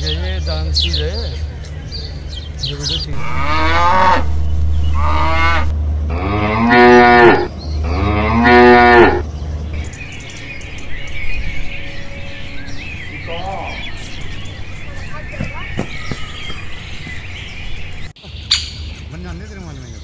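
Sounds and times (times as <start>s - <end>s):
cow mooing: 3.1s - 9.2s.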